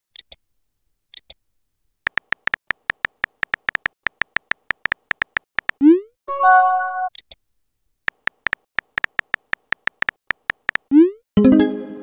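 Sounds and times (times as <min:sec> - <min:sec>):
phone keyboard clicks: 0:02.1 - 0:05.8, 0:08.1 - 0:10.9.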